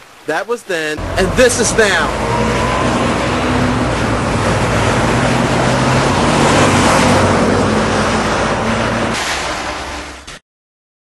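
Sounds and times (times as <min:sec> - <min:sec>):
car driving past: 0:01.0 - 0:10.2.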